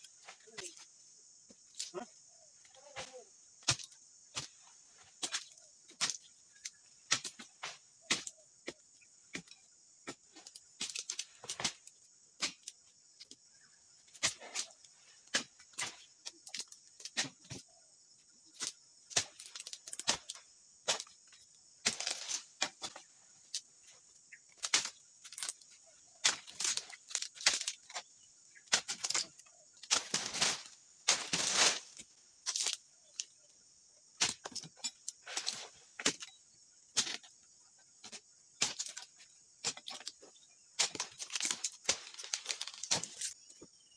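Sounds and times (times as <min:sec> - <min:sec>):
high insect drone: 0:00.0 - 0:43.9
chisel chopping palm fronds: 0:02.9 - 0:04.6, 0:07.0 - 0:12.8, 0:18.6 - 0:21.2, 0:21.8 - 0:23.1, 0:26.2 - 0:32.8, 0:34.2 - 0:37.3, 0:38.0 - 0:40.2, 0:40.8 - 0:43.4.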